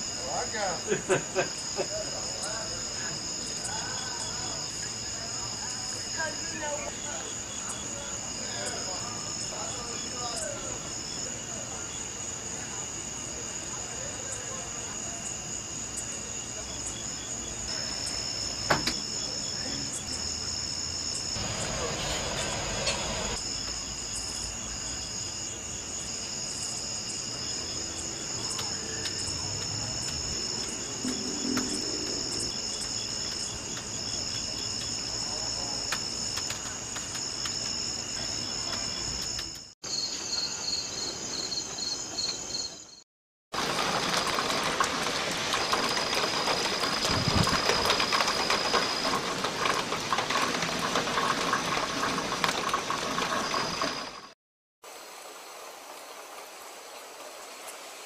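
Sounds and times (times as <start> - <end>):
night insects chirping: 0.0 - 43.0, 43.6 - 54.4
hiss: 21.4 - 23.4.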